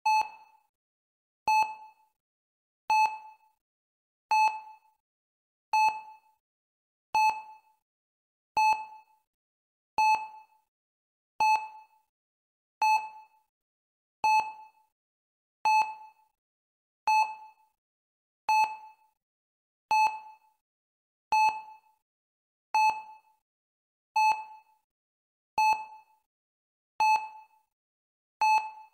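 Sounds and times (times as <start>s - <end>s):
heart rate monitor beeping: 0.0s - 0.6s, 1.5s - 1.8s, 2.9s - 3.3s, 4.3s - 4.8s, 5.8s - 6.1s, 7.2s - 7.5s, 10.0s - 10.4s, 11.4s - 11.8s, 12.8s - 13.1s, 14.2s - 14.6s, 15.7s - 16.0s, 18.5s - 18.9s, 19.9s - 20.3s, 22.8s - 23.2s, 24.2s - 24.6s, 25.6s - 25.9s, 27.0s - 27.4s, 28.4s - 28.9s.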